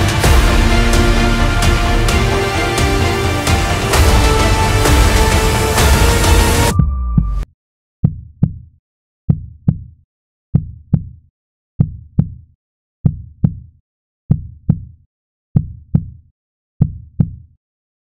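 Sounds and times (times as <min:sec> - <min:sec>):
heartbeat thumps: 0:10.6 - 0:11.1, 0:14.3 - 0:14.9, 0:15.6 - 0:16.1.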